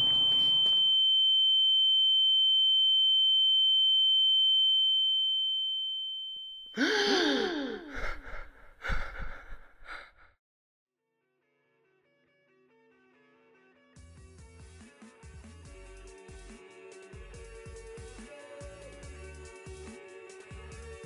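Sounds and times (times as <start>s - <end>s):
high-pitched electronic ringing tone: 0.0s - 6.8s
ragged breaths: 6.8s - 10.3s
man gasping for air: 6.8s - 10.4s.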